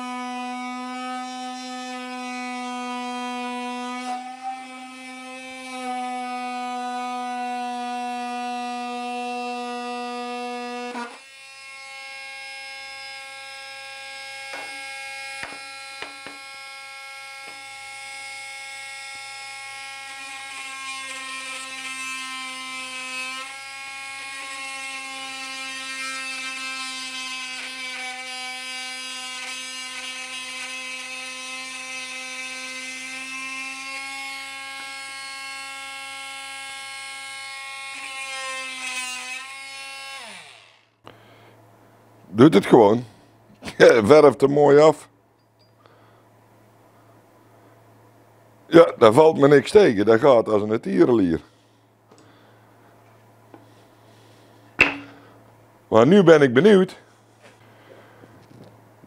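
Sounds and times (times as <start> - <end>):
oscillating multitool cutting wood: 0.0 - 41.0.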